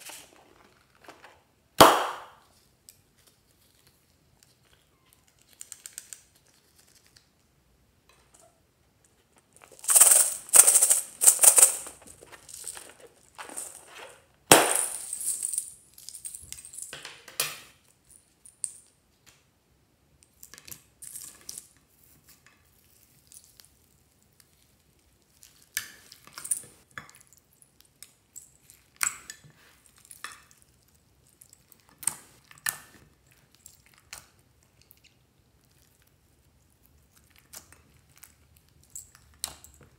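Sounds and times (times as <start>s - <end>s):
sharp knock: 1.8s - 2.4s.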